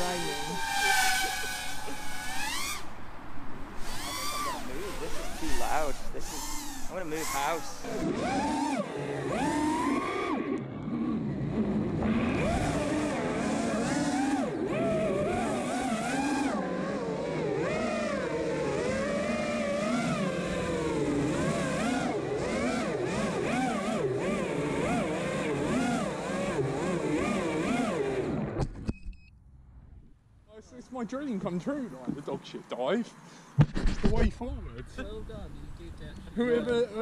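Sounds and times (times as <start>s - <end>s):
quadcopter motors whining: 0.0s - 28.6s.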